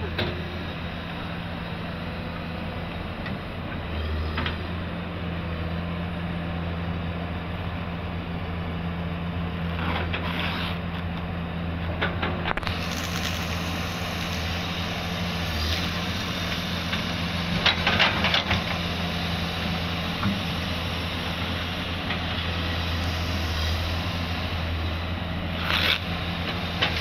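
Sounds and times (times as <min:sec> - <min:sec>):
excavator diesel engine running: 0:00.0 - 0:10.2, 0:10.8 - 0:27.0
bucket scraping loose material: 0:09.8 - 0:10.8, 0:25.6 - 0:26.0.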